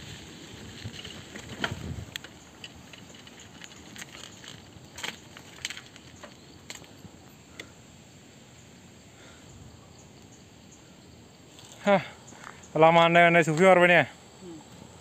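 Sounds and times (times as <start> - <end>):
bike clicking and rattling: 0.0 - 7.8
faint outdoor background hiss: 0.0 - 15.0.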